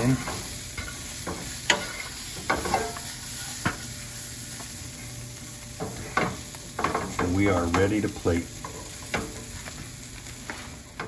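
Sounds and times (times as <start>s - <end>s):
vegetables sizzling in a skillet: 0.0s - 11.0s.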